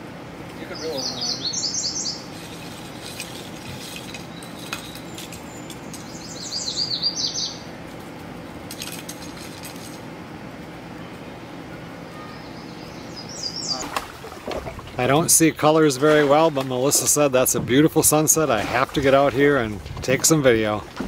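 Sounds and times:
songbird singing: 0:00.6 - 0:07.8, 0:11.0 - 0:18.4
faint high chirps: 0:11.7 - 0:13.9.

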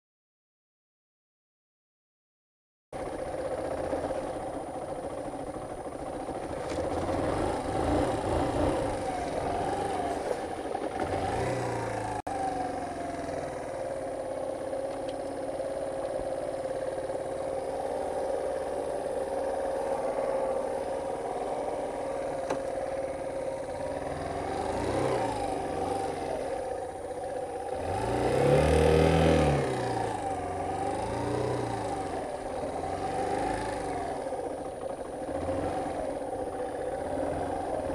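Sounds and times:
motorcycle engine revving: 0:03.0 - 0:37.9.

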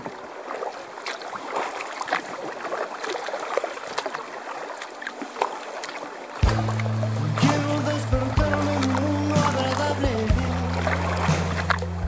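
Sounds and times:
water splashing against kayak hull: 0:00.0 - 0:12.0.

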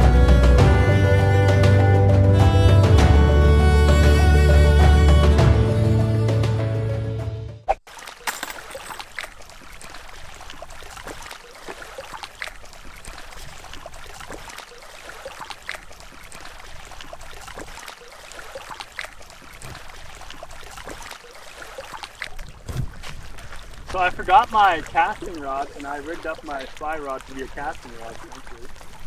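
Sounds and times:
river water rushing: 0:07.9 - 0:29.0.

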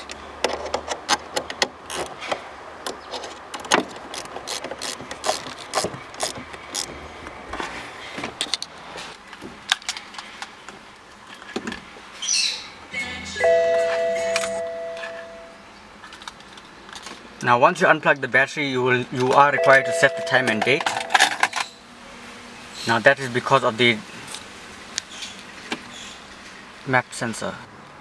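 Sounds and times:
dashboard warning chime: 0:13.2 - 0:15.6, 0:19.5 - 0:21.2.

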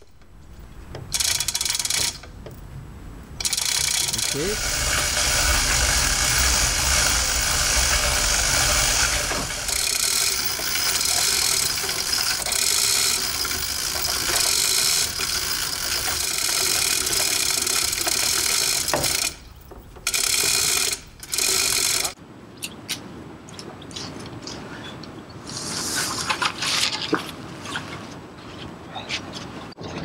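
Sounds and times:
chain hoist ratcheting clatter: 0:00.0 - 0:02.4, 0:03.4 - 0:22.2.

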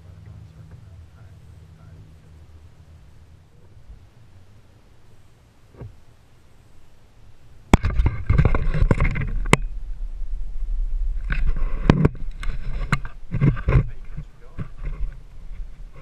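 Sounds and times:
low microphone rumble: 0:00.0 - 0:16.0
camera handling scrapes and rustling: 0:11.3 - 0:16.0.

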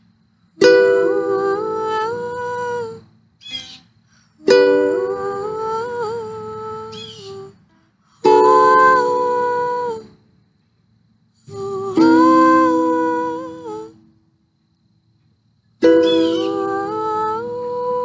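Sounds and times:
woman singing long notes: 0:00.6 - 0:03.1, 0:04.3 - 0:10.2, 0:11.4 - 0:14.1, 0:15.8 - 0:18.0.

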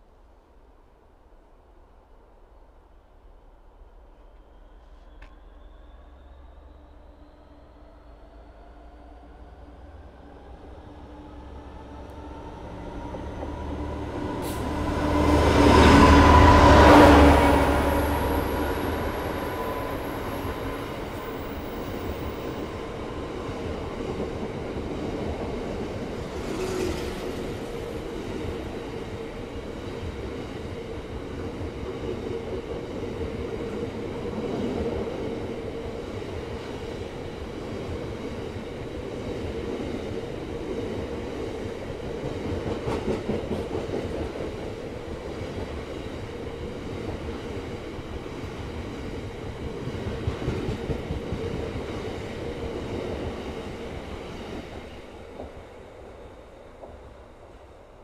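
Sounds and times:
freight train wheels on rails: 0:09.2 - 0:58.0.

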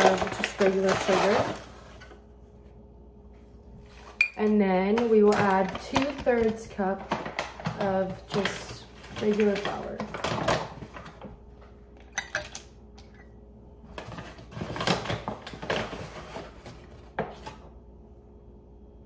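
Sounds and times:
paper flour bag rustling: 0:00.0 - 0:02.8, 0:03.4 - 0:11.6, 0:13.9 - 0:17.6.

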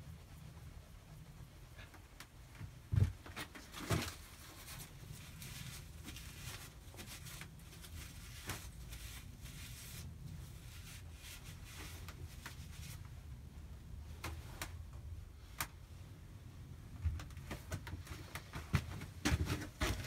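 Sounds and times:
faint rubbing and clicks: 0:00.0 - 0:13.4.

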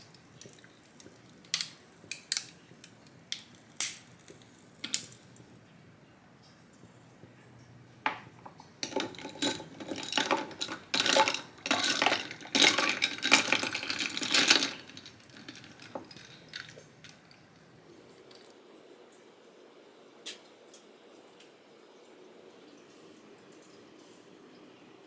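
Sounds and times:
ice cubes clinking in glass: 0:08.8 - 0:17.4.

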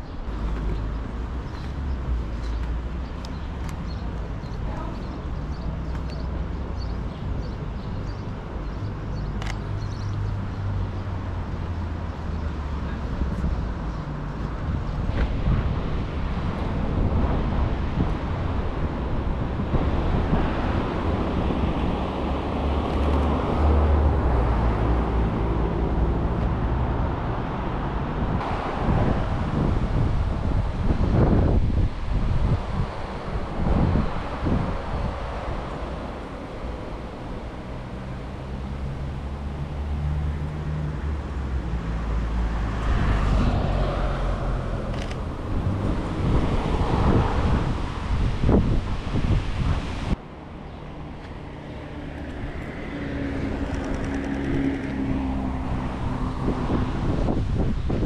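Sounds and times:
low engine hum: 0:00.0 - 0:58.0
traffic rumble: 0:00.0 - 0:58.0
wind buffeting microphone: 0:13.1 - 0:39.8, 0:41.4 - 0:58.0
vehicle passing: 0:32.5 - 0:58.0.

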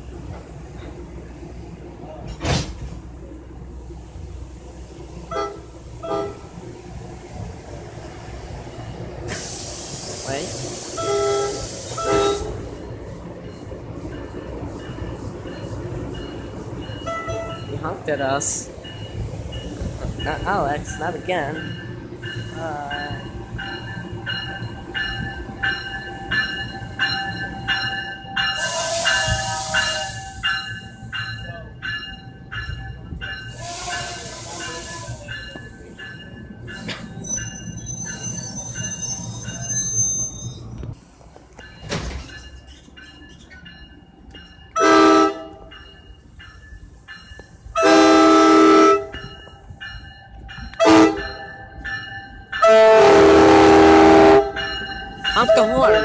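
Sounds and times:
train rumble: 0:00.0 - 0:56.0
air hiss: 0:09.3 - 0:12.1, 0:33.6 - 0:35.3
train air horn: 0:10.9 - 0:12.6, 0:28.6 - 0:30.4, 0:33.6 - 0:35.2, 0:44.8 - 0:45.6, 0:47.8 - 0:49.1, 0:50.8 - 0:51.2, 0:52.6 - 0:54.6
crossing bell dinging: 0:11.0 - 0:40.8, 0:41.5 - 0:56.0
bell ringing: 0:49.1 - 0:52.7, 0:54.5 - 0:56.0.

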